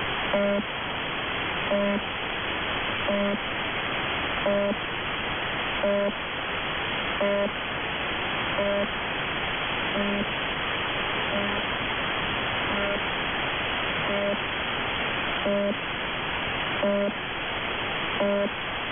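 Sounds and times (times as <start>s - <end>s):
radio static hiss: 0.0s - 18.9s
short low buzzes: 3.1s - 3.4s, 8.6s - 8.9s, 10.0s - 10.3s, 11.3s - 11.7s, 12.7s - 13.1s, 14.0s - 14.4s.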